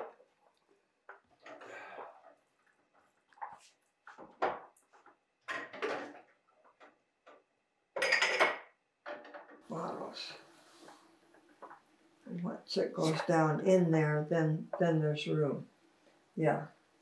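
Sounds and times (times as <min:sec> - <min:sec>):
glass jars clinking: 0:08.0 - 0:08.7.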